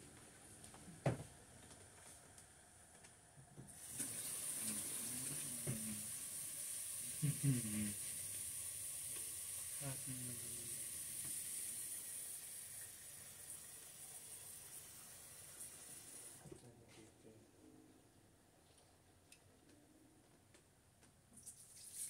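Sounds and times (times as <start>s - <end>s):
sizzling on a stove: 3.7s - 16.4s.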